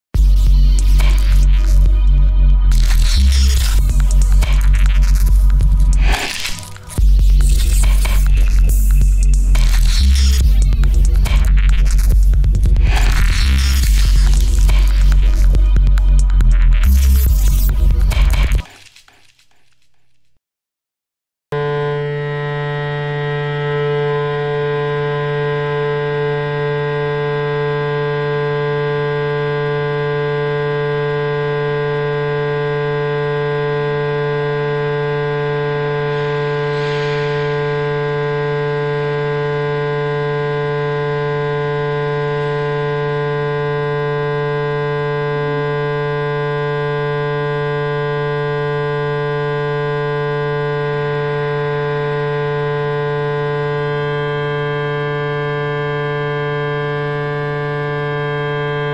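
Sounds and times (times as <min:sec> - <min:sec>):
electronic hum: 0:00.2 - 0:19.8, 0:21.5 - 0:58.9.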